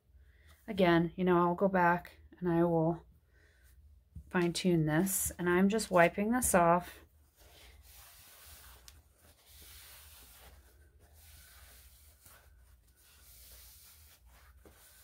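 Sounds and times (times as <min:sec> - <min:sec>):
paper towel wiping glass: 0:07.4 - 0:15.0.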